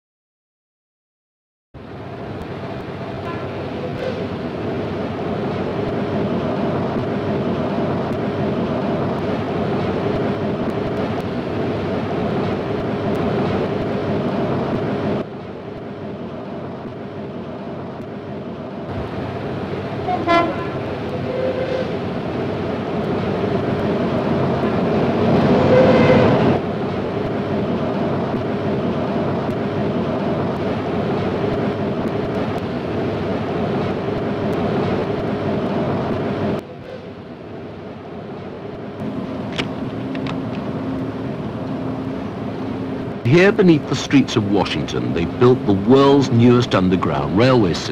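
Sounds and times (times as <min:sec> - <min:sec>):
electric train rumbling: 0:01.8 - 0:47.9
train horn: 0:03.2 - 0:04.3, 0:20.0 - 0:22.0, 0:25.6 - 0:26.4.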